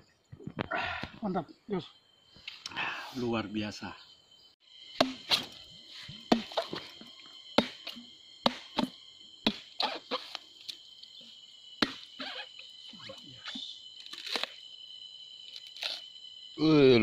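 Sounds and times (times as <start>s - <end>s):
machete chopping coconut: 5.0s - 5.6s, 6.3s - 6.8s, 7.6s - 10.0s, 11.8s - 12.1s.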